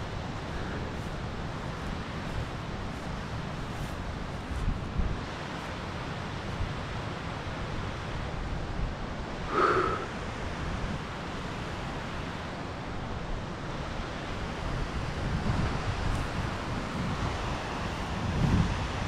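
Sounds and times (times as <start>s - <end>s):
wind blowing on microphone: 14.5s - 19.0s.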